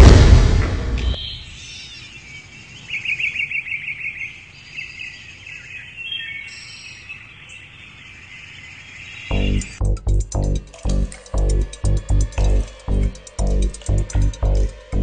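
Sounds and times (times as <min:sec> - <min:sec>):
bird trill: 0:01.0 - 0:15.0
birds chirping: 0:01.0 - 0:15.0.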